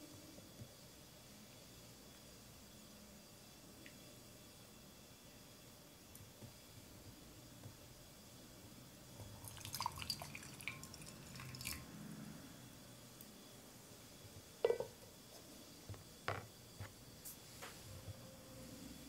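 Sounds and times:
water poured into bowl: 9.4 - 11.8.

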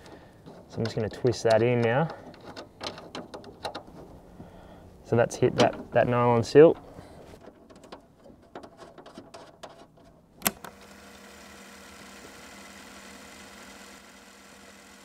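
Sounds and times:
metallic clicks of nut and bolt: 0.0 - 4.1, 6.7 - 10.7.

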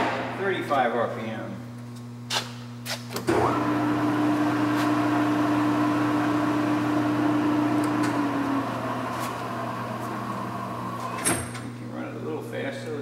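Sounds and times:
lathe motor whining: 3.3 - 11.2.

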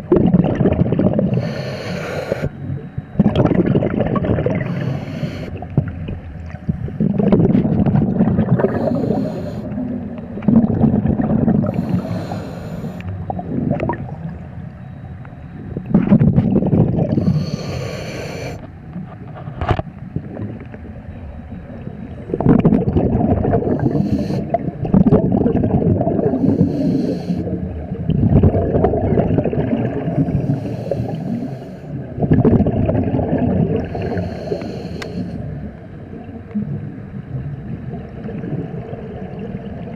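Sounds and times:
gurgling exhaust bubbles: 0.0 - 1.4, 3.2 - 12.0, 13.3 - 14.4, 15.8 - 17.3, 22.2 - 26.9, 27.8 - 30.6, 32.1 - 34.2
regulator inhale hiss: 1.3 - 2.6, 4.6 - 5.7, 8.6 - 10.0, 11.6 - 13.2, 17.1 - 18.7, 23.6 - 24.6, 26.2 - 27.6, 30.2 - 32.0, 33.8 - 35.6.

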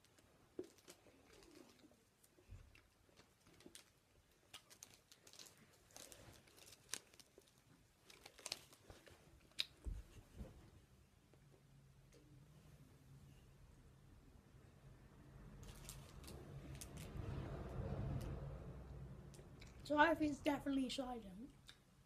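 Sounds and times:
wrapper crinkling and rustling: 0.0 - 9.8, 15.6 - 17.1.

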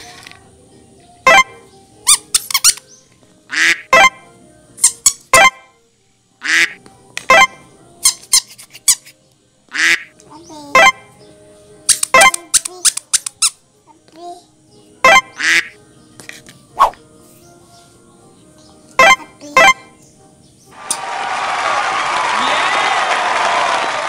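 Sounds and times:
rubber duck toy squeaking: 2.1 - 2.8, 6.4 - 9.1, 11.9 - 13.6, 15.0 - 15.8.

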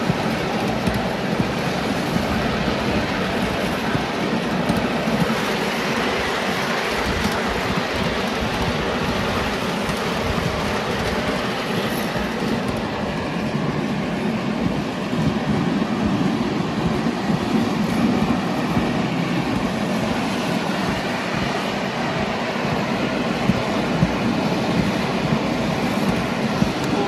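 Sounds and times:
miniature train wheels rumbling on rails: 0.0 - 27.0.

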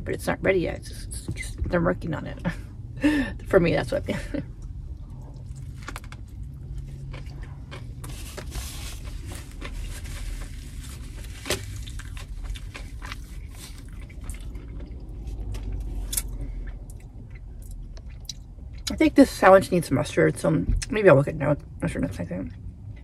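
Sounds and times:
steady low hum: 0.0 - 23.0
wet squishy chewing: 5.0 - 10.4, 11.1 - 18.9.

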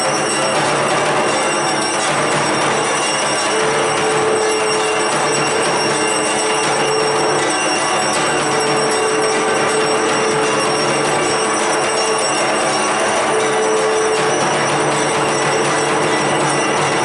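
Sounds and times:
bells ringing and clanging: 0.0 - 17.0
steady held tone: 0.0 - 17.0.

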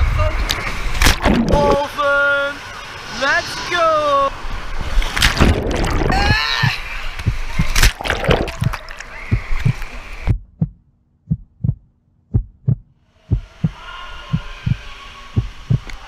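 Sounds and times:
splashy pool noise: 0.8 - 2.0, 4.7 - 10.2
steady low hum: 4.2 - 16.0
heartbeat double thumps: 5.4 - 14.8, 15.4 - 15.9.

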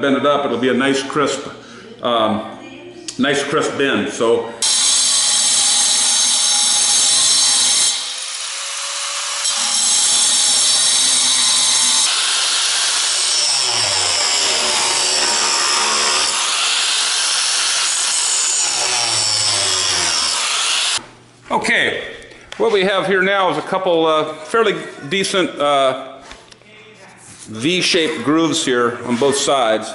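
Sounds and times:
angle grinder grinding steel: 4.6 - 21.0.

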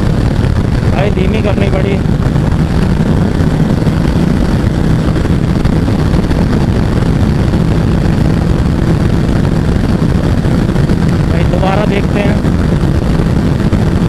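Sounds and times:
motorcycle engine at high revs: 0.0 - 14.0
wind rush on microphone: 0.0 - 14.0.

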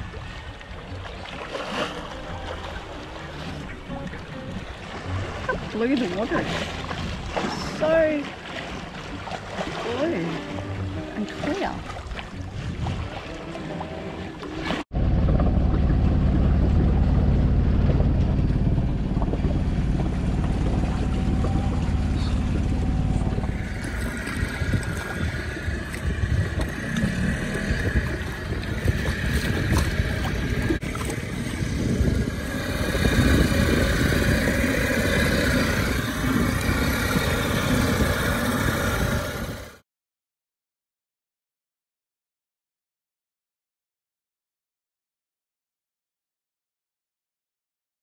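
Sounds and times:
boat engine hum: 0.0 - 39.8
outboard motor running: 0.0 - 39.8
water splashing: 0.0 - 39.8
wind on microphone: 10.6 - 13.8, 14.7 - 39.8.

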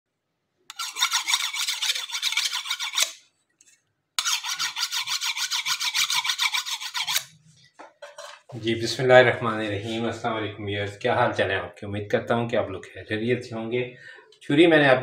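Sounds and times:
knife scraping on honing steel: 0.7 - 3.2, 4.2 - 7.4.

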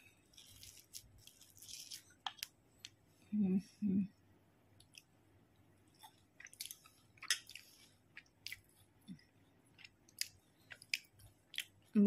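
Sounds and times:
person chewing with wet smacks: 5.9 - 12.0.

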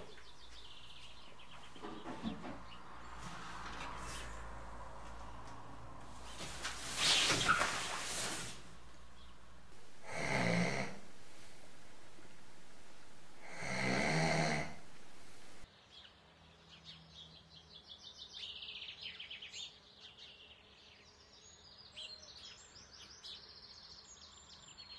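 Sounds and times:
faint birdsong: 0.0 - 24.9
man snoring: 8.3 - 15.6.

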